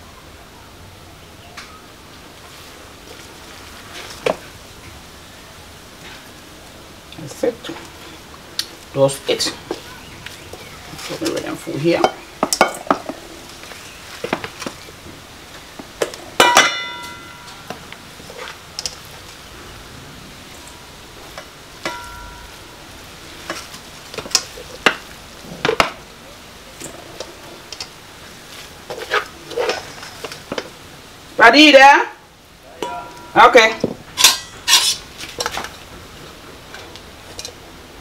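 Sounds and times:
pot clanging: 12.0 - 13.2, 16.4 - 17.8, 21.3 - 22.8, 32.8 - 35.6
spoon scraping in metal pot: 34.2 - 35.5.

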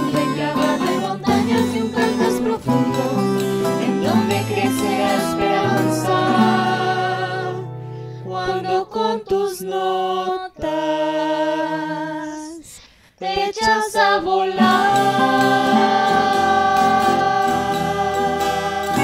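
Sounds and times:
classical guitars: 0.0 - 9.1, 14.5 - 19.0
vocal ensemble singing in harmony: 0.0 - 19.0.

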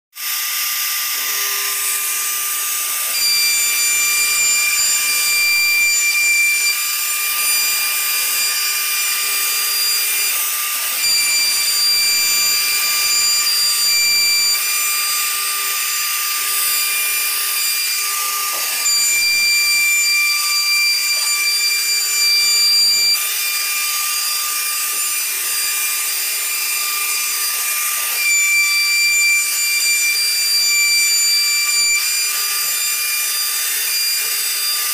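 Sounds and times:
router bit chipping wood: 0.2 - 34.9
router spindle whining: 0.2 - 34.9.

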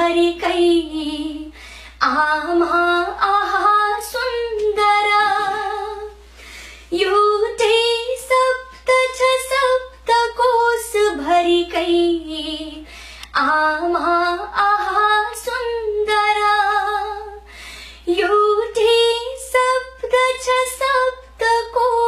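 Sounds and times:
woman singing unaccompanied: 0.0 - 6.2, 6.9 - 22.0.

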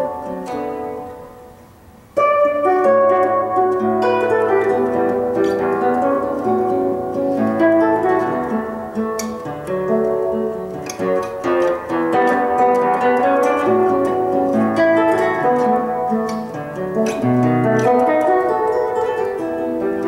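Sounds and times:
classical guitar fingerstyle: 0.0 - 20.0.

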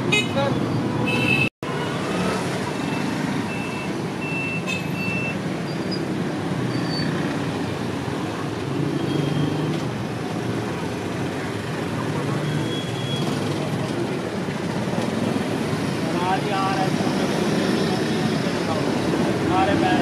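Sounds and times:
street traffic: 0.0 - 20.0.

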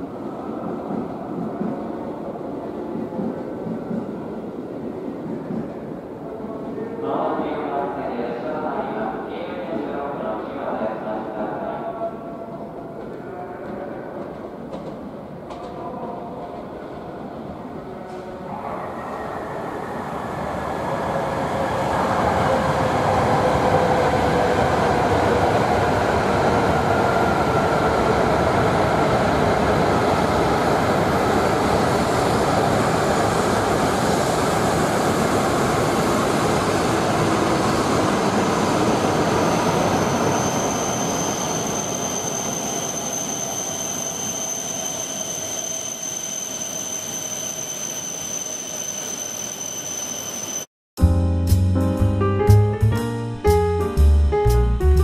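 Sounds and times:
train running past: 0.0 - 50.7
thin high squeal: 40.0 - 50.7.

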